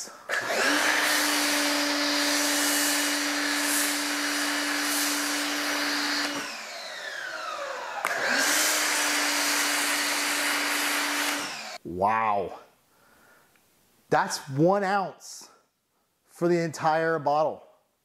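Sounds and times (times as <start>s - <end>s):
pressure washer motor whine: 0.3s - 11.8s.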